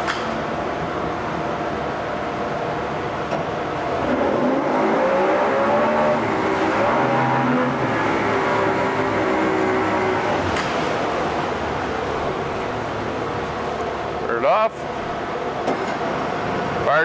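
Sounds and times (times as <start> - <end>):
propeller churning water: 0.0 - 17.0
outboard motor revving: 3.9 - 13.3.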